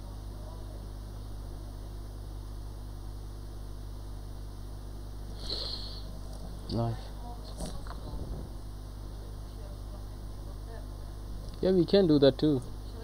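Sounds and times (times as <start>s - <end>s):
low electrical hum: 0.0s - 13.0s
constant hiss: 3.3s - 13.0s.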